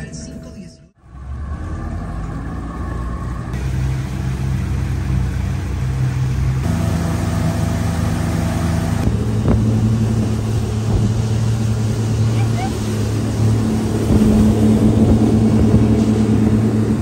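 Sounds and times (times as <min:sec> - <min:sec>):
outboard motors droning: 0:01.0 - 0:17.0
rush of wind and water: 0:03.5 - 0:17.0.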